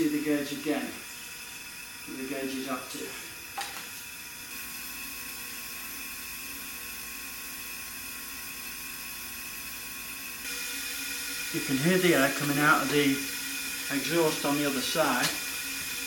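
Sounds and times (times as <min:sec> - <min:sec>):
compressed air hissing: 0:00.0 - 0:06.7, 0:10.4 - 0:16.0.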